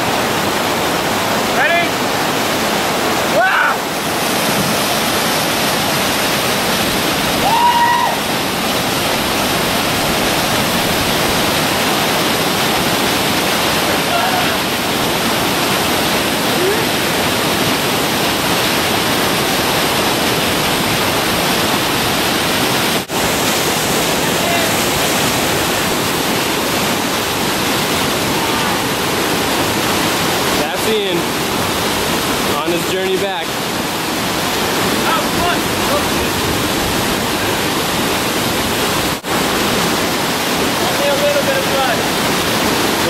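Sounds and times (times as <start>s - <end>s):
river whitewater rushing: 0.0s - 43.0s
person shouting: 3.3s - 3.8s, 7.4s - 8.2s, 13.9s - 14.6s, 16.6s - 16.9s.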